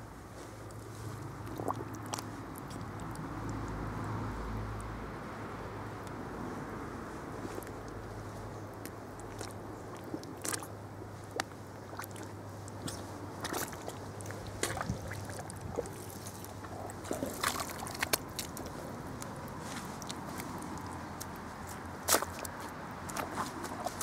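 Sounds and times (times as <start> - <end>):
footsteps squelching in mud: 7.5 - 24.0.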